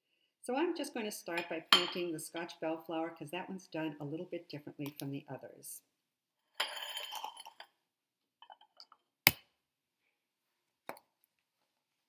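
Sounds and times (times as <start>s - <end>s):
ceramic plates clinking on stone: 1.7s - 2.0s.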